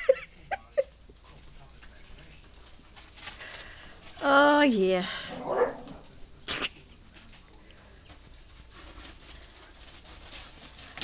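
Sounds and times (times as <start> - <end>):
high-pitched hiss: 0.0 - 11.0
sharp rustle: 2.5 - 4.2, 5.6 - 11.0.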